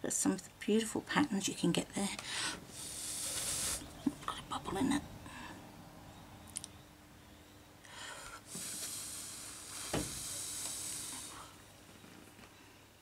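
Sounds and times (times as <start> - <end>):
breath blowing hiss: 2.3 - 4.0, 7.9 - 11.6.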